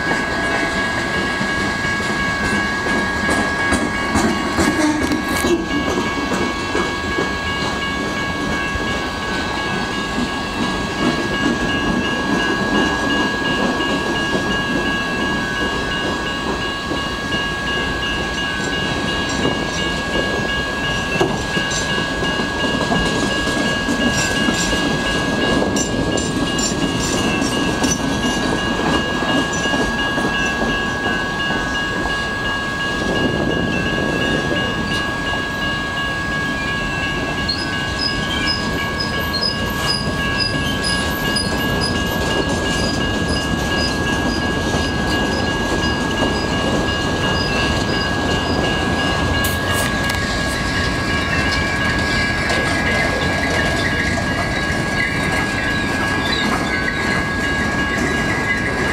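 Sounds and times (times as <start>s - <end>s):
train wheels clattering over rails: 0.0s - 35.4s, 37.2s - 58.9s
crossing bells ringing: 0.0s - 58.9s.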